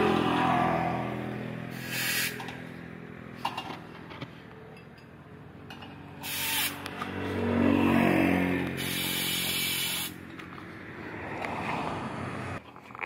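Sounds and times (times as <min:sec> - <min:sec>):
vehicle engine humming: 0:00.0 - 0:13.0
compressed air hisses: 0:01.7 - 0:02.4, 0:06.2 - 0:06.8, 0:08.8 - 0:10.2.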